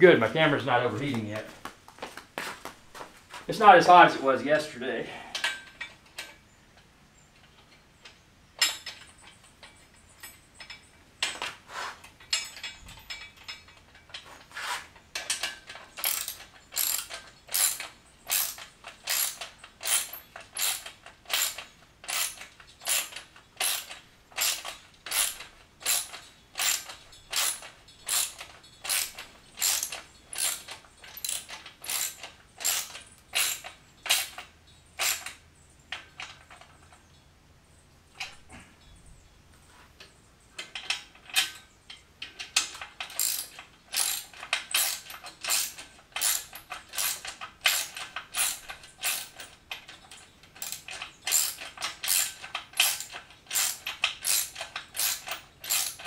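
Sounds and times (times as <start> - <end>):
socket ratchet clicking: 50.6 - 56.0.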